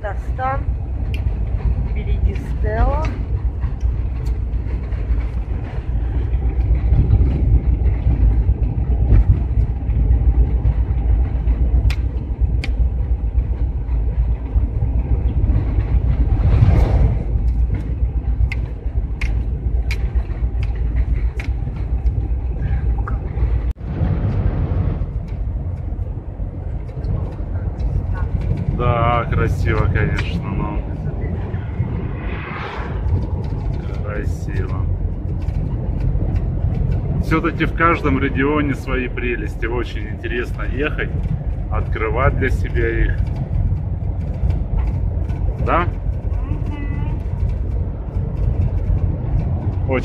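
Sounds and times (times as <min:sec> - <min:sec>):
engine and tyre rumble: 0:00.0 - 0:50.0
lorry passing whoosh: 0:27.6 - 0:35.8.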